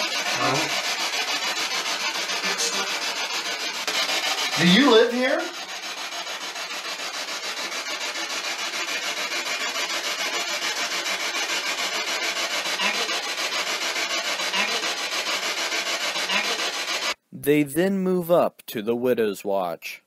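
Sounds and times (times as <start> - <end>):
pulsing radio static: 0.0 - 0.8, 2.3 - 3.1, 3.9 - 5.6.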